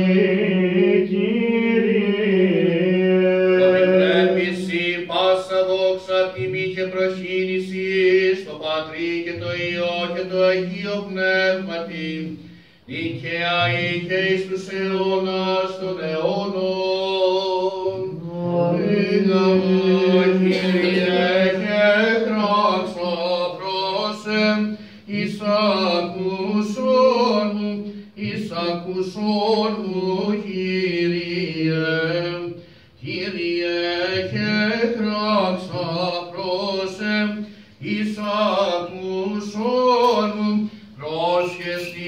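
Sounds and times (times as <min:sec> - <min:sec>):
person chanting a melody: 0:12.9 - 0:24.5.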